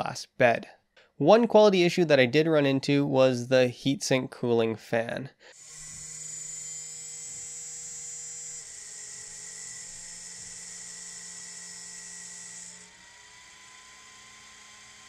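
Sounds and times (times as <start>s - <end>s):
cooling fan whining and buzzing: 5.6s - 15.0s.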